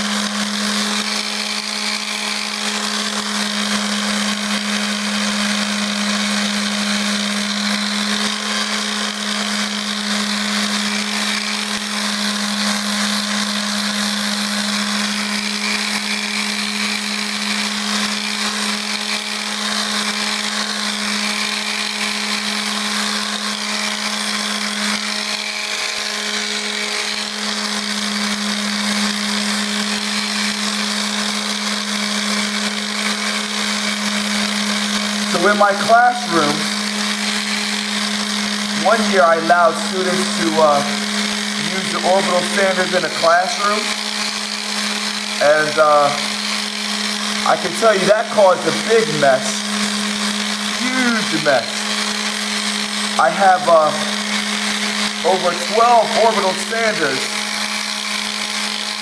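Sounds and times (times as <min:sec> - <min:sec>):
sander motor hum: 0:00.0 - 0:59.0
sandpaper hissing on wood: 0:45.4 - 0:46.4, 0:55.2 - 0:57.3.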